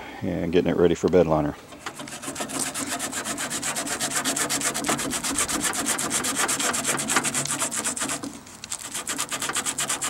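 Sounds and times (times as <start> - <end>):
sandpaper scratching on metal: 2.0 - 10.0.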